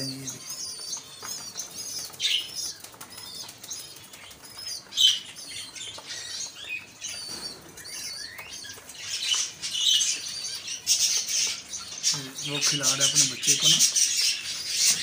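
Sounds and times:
wings flapping: 1.0s - 5.0s.

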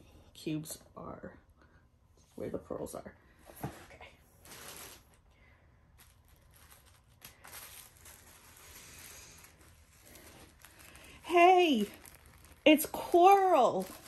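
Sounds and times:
plastic bags rustling: 4.3s - 14.0s.

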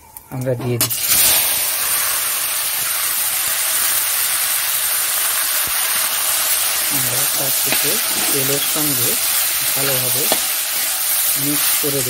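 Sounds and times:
greens sizzling in hot oil: 0.8s - 12.0s.

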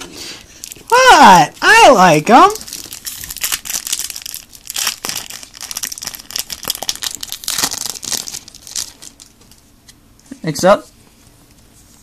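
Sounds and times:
foil wrapper crinkling and tearing: 0.4s - 1.2s, 2.3s - 9.6s.

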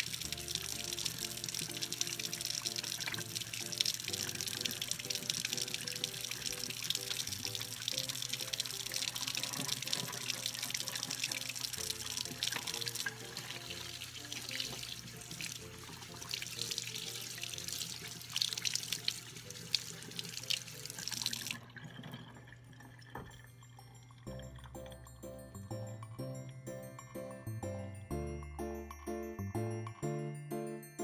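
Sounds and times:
background music: 0.0s - 21.5s, 23.4s - 31.0s
faucet water splashing into sink: 0.0s - 23.6s.

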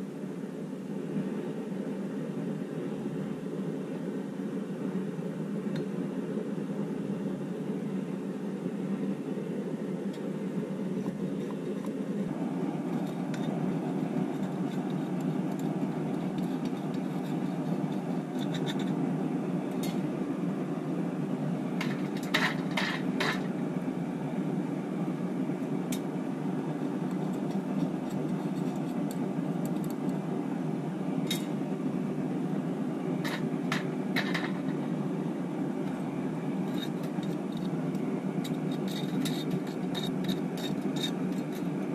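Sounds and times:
metal scraping and clinking: 12.6s - 19.0s, 21.8s - 23.5s, 26.9s - 30.0s, 33.2s - 34.9s, 36.6s - 41.9s.

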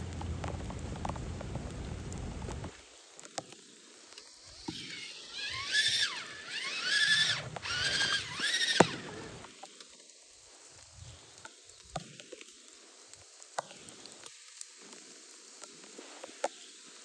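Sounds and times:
light rain patter: 0.0s - 17.0s
toy car electric motor whining: 4.3s - 9.5s.

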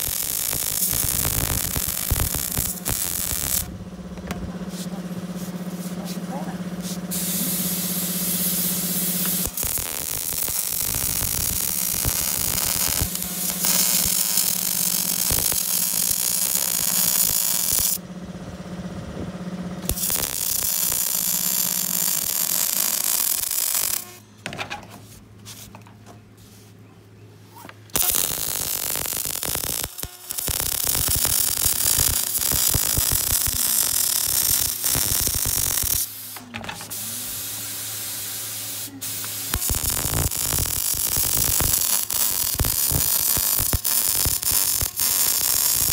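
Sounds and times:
welder crackling and hissing: 0.0s - 3.7s, 4.7s - 18.0s, 19.8s - 24.2s, 27.6s - 45.9s.

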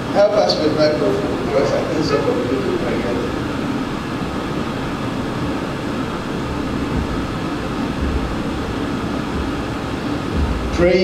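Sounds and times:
room hiss: 0.0s - 11.0s
low rumble: 4.2s - 11.0s.

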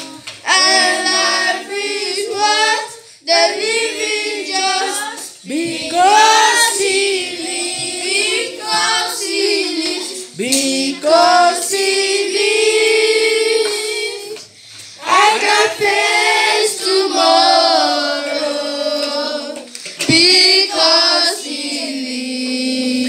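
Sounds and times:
children's choir singing: 0.0s - 23.0s
girl singing into a microphone: 19.4s - 23.0s.

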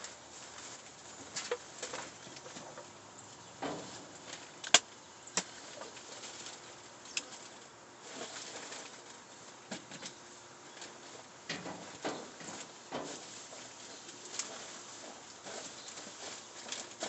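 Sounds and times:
rustling trash: 3.6s - 4.7s, 5.4s - 10.2s, 10.8s - 17.0s.

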